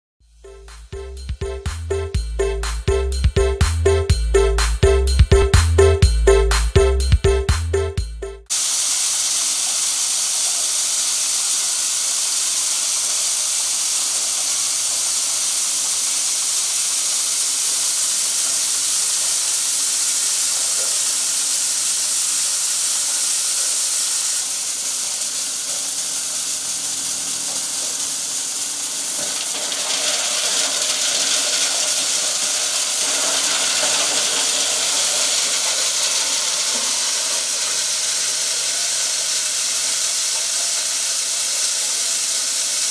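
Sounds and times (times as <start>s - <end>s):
chopper machine running under load: 23.8s - 42.2s.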